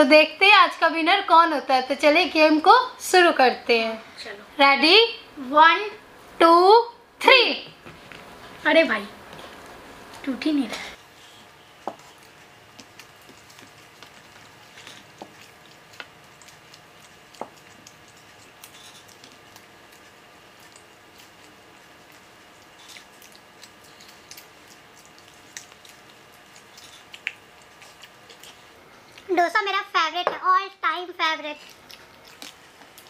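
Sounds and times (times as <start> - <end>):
steady low hum: 0.0 - 33.0
crisp food torn and chewed: 12.0 - 29.3, 31.6 - 33.0.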